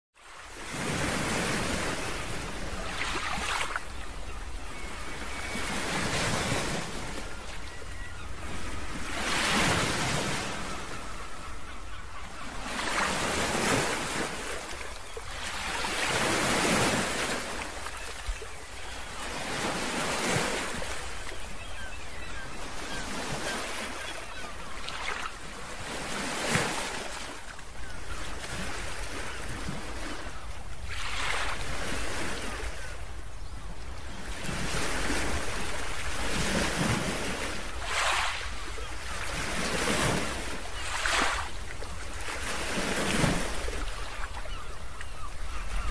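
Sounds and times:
ocean surf on rocky shore: 12.4 - 30.4, 34.2 - 44.7.

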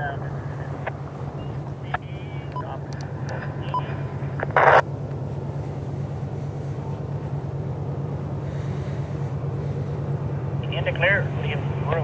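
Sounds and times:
low engine drone: 0.0 - 12.0.

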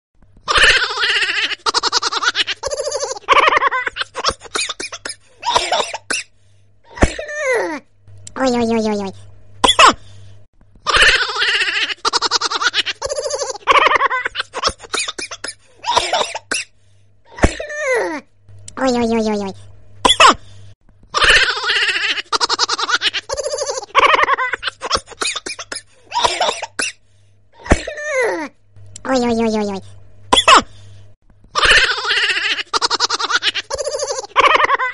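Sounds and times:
people talking: 7.3 - 9.2, 17.8 - 19.6, 28.0 - 29.9.

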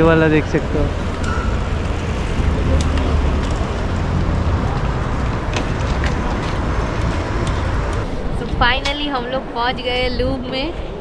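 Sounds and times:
city noise: 0.0 - 11.0
wind buffeting microphone: 0.0 - 11.0.

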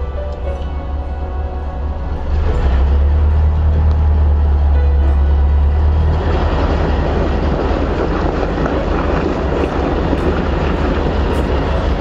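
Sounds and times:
truck engine straining: 0.0 - 12.0
wheels spinning on mud and ice: 5.6 - 12.0.

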